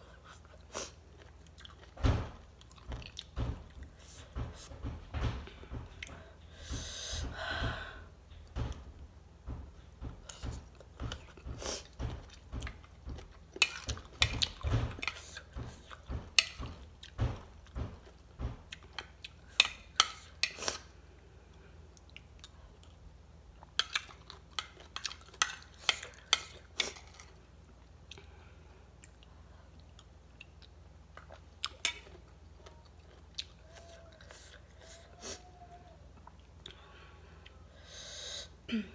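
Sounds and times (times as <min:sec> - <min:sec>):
crunchy food being chewed: 0:00.2 - 0:02.0.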